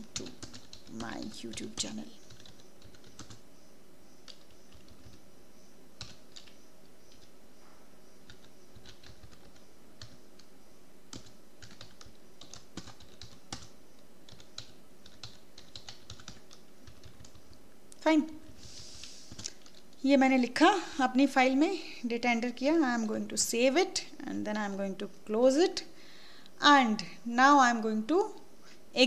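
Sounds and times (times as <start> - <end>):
faint steady hum: 0.0 - 29.0
computer keyboard keystrokes: 0.1 - 3.4, 6.0 - 7.3, 8.3 - 10.5, 11.1 - 13.7, 14.3 - 17.4.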